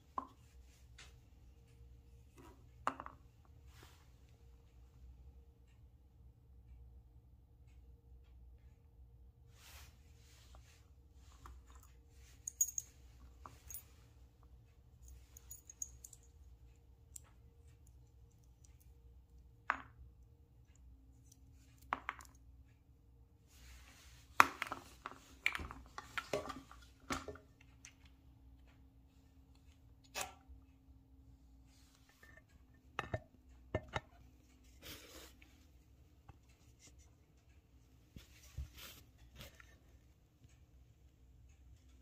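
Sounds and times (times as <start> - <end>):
faint steady hum: 0.0 - 42.0
small metal parts clinking: 12.4 - 13.0.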